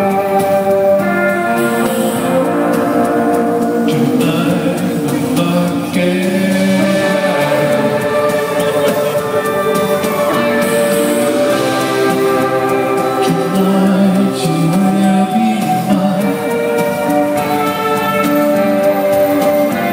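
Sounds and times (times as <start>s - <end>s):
live band playing slow rock: 0.0s - 19.9s
man and woman singing together: 3.6s - 17.7s.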